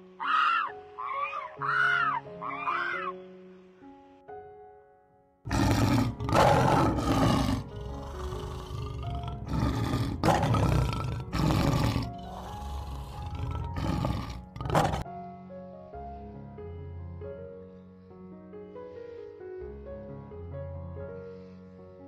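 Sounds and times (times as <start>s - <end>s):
soft background music: 0.0s - 22.0s
lion roaring: 5.5s - 15.0s.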